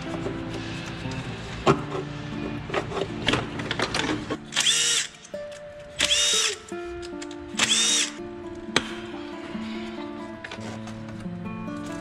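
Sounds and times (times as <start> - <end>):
background music: 0.0 - 12.0
cordless power driver whirring: 4.6 - 5.2, 6.0 - 6.7, 7.6 - 8.2.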